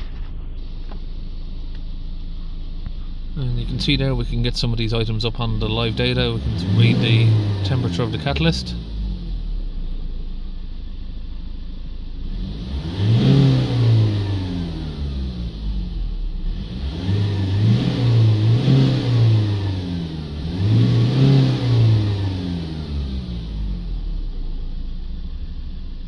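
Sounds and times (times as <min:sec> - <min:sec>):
diesel engine revving: 0:03.3 - 0:09.9, 0:12.2 - 0:24.5.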